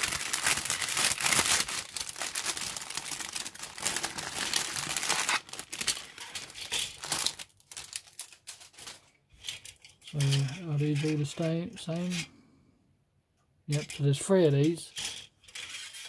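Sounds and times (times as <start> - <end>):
plastic bag crinkling: 0.0 - 9.2.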